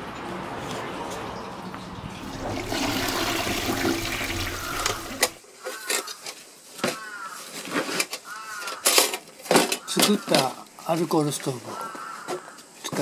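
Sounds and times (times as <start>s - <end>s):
rushing water-like noise: 2.2s - 5.4s.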